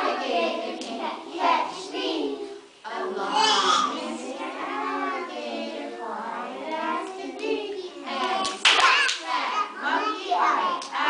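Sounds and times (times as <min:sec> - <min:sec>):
child talking and singing: 0:03.2 - 0:04.3, 0:07.2 - 0:10.9
sharp hand claps: 0:08.2 - 0:09.3.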